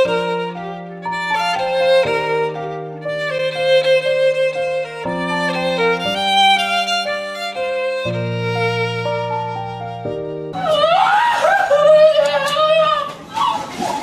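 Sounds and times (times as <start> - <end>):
violin melody: 0.0 - 12.8.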